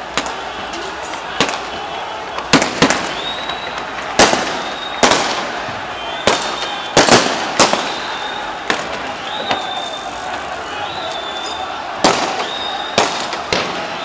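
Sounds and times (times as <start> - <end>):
steady background din: 0.0 - 14.0
echoing gunshots: 4.0 - 5.6, 6.2 - 9.0, 11.8 - 14.0.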